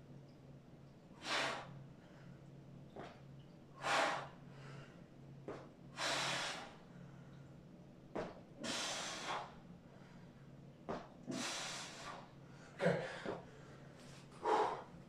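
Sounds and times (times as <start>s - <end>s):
man breathing hard: 3.8s - 5.0s, 6.0s - 7.3s, 8.6s - 10.3s, 11.3s - 15.0s.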